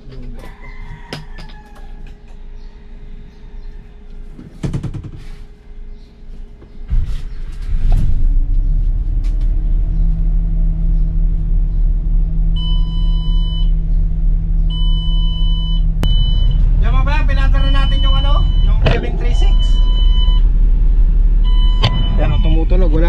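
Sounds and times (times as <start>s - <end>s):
diesel bus engine idling: 5.5s - 23.0s
dashboard warning beep: 12.6s - 13.8s, 14.7s - 20.5s, 21.4s - 23.0s.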